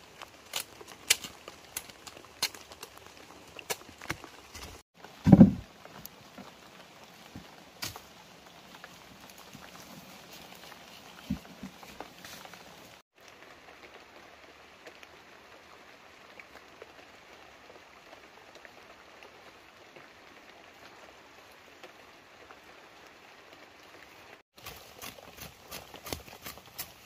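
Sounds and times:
rain on foliage: 0.0s - 27.0s
footsteps on leaf litter: 6.0s - 13.0s, 24.6s - 27.0s.

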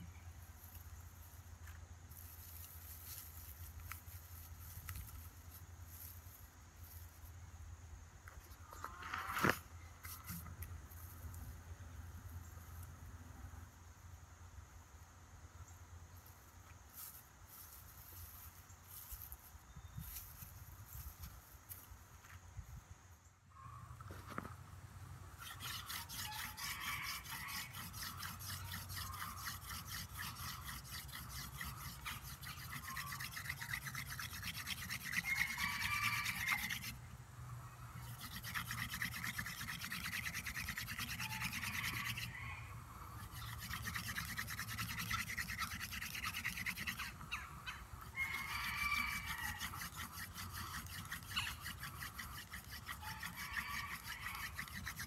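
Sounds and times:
wood-on-wood scrubbing: 25.4s - 37.0s, 38.0s - 42.4s, 43.1s - 47.3s, 48.2s - 55.0s.

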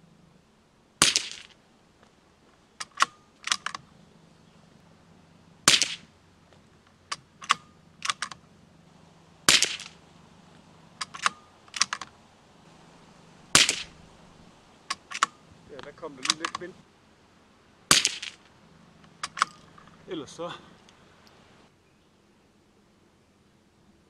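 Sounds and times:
suppressed rifle shots: 1.0s - 1.6s, 5.6s - 6.1s, 7.1s - 8.4s, 9.4s - 10.0s, 11.0s - 12.1s, 13.5s - 14.2s, 14.9s - 15.4s, 16.2s - 16.7s, 17.9s - 18.5s, 19.1s - 19.9s
rifle bolt metallic clicks: 2.8s - 3.8s, 7.1s - 8.4s, 11.0s - 12.1s, 14.9s - 16.7s, 19.0s - 20.0s.

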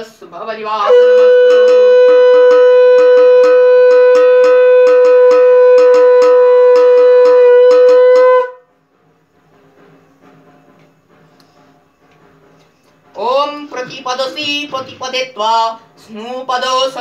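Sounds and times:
conch shell blown: 0.8s - 8.8s.

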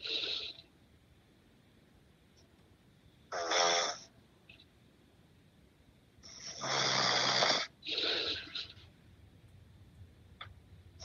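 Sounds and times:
man snoring: 6.3s - 8.5s.

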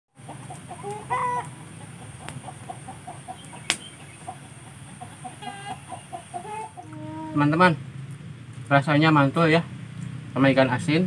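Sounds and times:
chicken drawn-out call: 0.2s - 7.6s
chickens clucking: 0.2s - 7.8s
sharp clicks: 3.7s - 3.9s.

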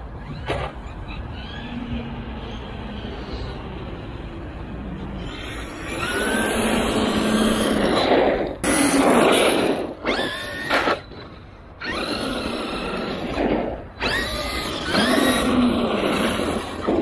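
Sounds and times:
tyres rushing on asphalt: 0.0s - 17.0s
electric motor whining: 5.2s - 17.0s.

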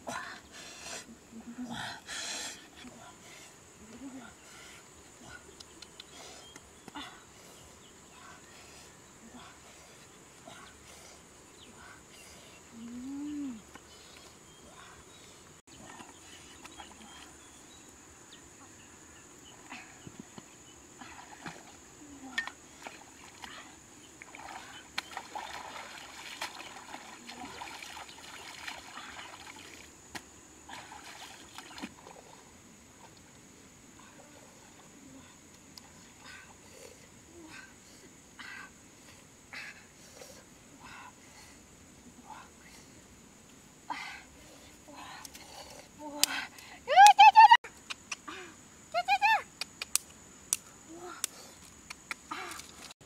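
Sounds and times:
water splashing and sloshing: 21.0s - 33.2s.

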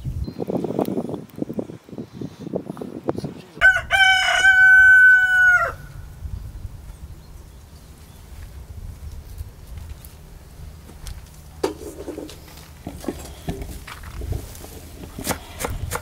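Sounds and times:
rooster crowing: 3.6s - 6.0s.

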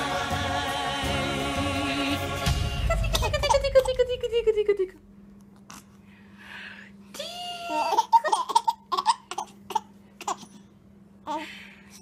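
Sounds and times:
baby giggling: 2.8s - 5.0s, 7.2s - 10.5s.

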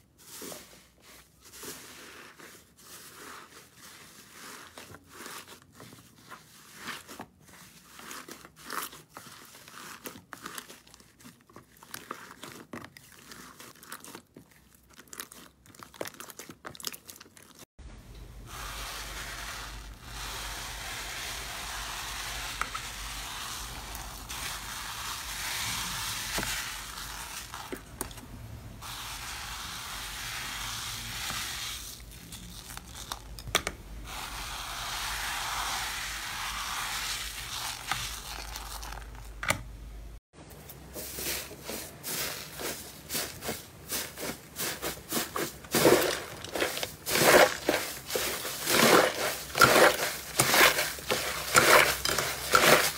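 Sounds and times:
hands kneading sticky slime: 0.0s - 17.6s, 41.0s - 52.9s
spoon stirring slime in bowl: 0.3s - 17.6s, 18.2s - 28.2s, 40.6s - 52.9s.

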